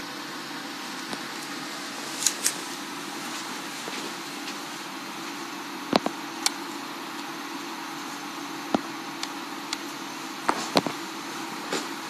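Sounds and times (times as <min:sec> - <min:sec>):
background hum and hiss: 0:00.0 - 0:12.0.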